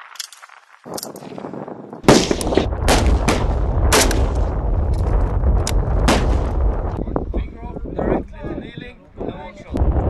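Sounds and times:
rifle gunshots: 2.1s - 4.5s, 6.0s - 6.7s
low rumble: 2.4s - 8.4s, 9.7s - 10.0s.

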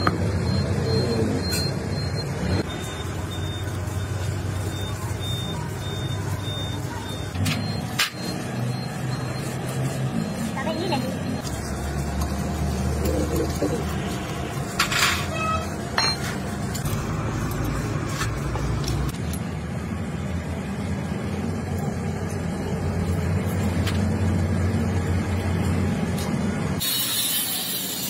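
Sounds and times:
loud hiss: 26.8s - 28.0s.

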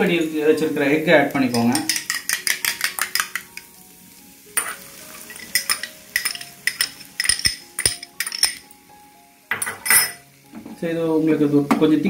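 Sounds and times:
egg sizzling in hot oil: 0.0s - 12.0s
metal spoon clinking on bowl: 1.5s - 3.6s, 4.6s - 8.6s, 9.5s - 10.2s.

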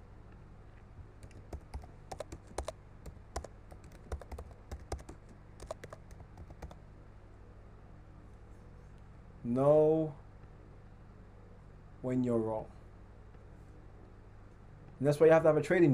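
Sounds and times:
computer keyboard typing: 1.2s - 6.8s.

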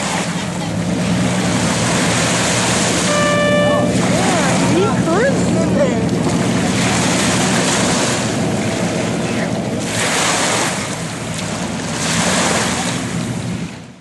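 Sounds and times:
aircraft engines droning: 0.0s - 13.9s
waves on the shore: 0.0s - 14.0s.

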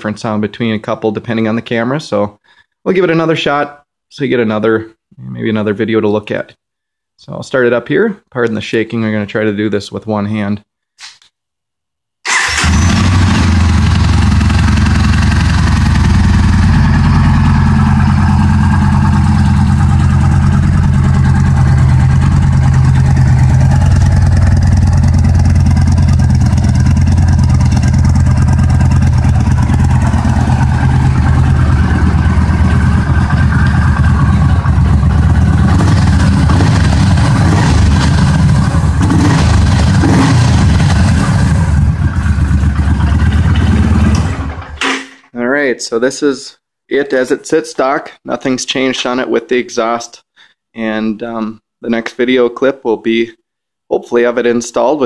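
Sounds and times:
motorcycle engine idling: 13.1s - 40.0s, 40.6s - 44.5s.

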